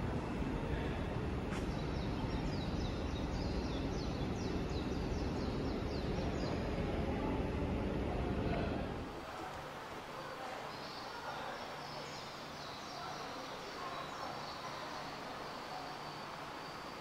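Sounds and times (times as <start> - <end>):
steady background noise: 0.0 - 17.0
small bird chirping: 1.6 - 6.7, 10.6 - 17.0.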